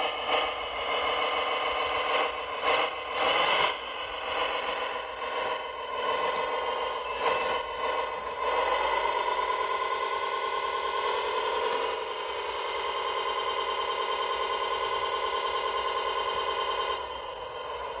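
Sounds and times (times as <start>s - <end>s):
electric motor whining: 2.9s - 9.5s.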